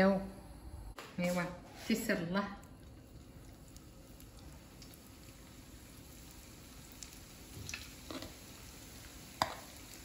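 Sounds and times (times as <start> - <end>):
pastry sizzling in oil: 1.2 - 10.0
oil pops and crackles: 7.0 - 8.4.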